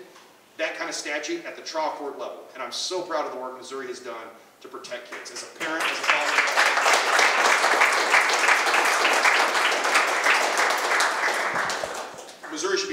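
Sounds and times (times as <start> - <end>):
audience applauding: 5.6 - 12.8.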